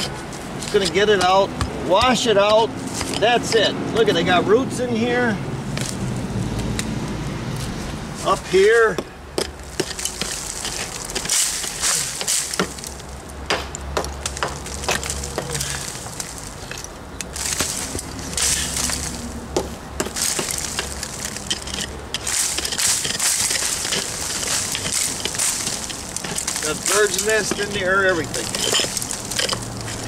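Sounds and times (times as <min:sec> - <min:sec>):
hammer knocking and scraping: 0:00.0 - 0:04.1, 0:08.2 - 0:30.0
debris falling: 0:08.9 - 0:30.0.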